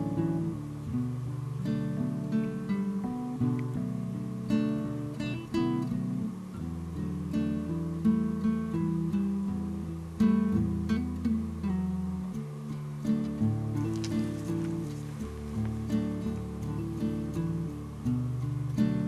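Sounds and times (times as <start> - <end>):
acoustic guitar music: 0.0 - 19.0.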